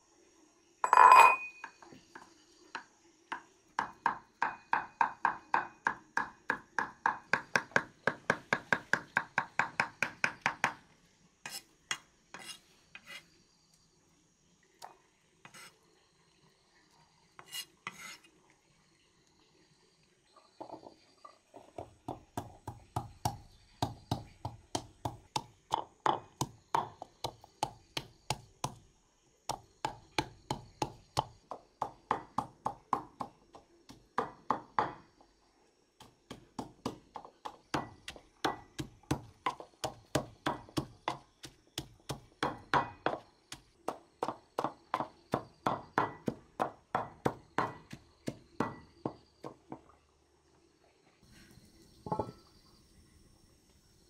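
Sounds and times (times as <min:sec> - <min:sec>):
pestle pounding in mortar: 0:03.3 - 0:10.8, 0:21.8 - 0:28.8, 0:29.5 - 0:35.0, 0:36.0 - 0:49.6.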